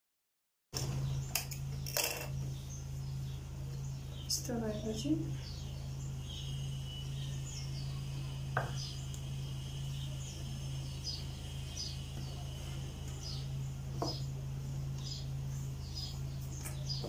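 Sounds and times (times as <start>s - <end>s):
small bird chirping: 0.8s - 17.0s
steady low hum: 0.8s - 17.0s
thin high whine: 4.5s - 17.0s.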